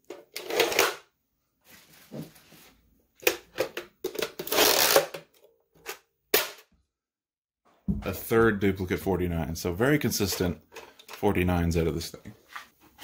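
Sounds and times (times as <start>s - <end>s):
loud plastic rasp: 4.4s - 5.2s
plastic clicks and scraping: 10.2s - 11.4s.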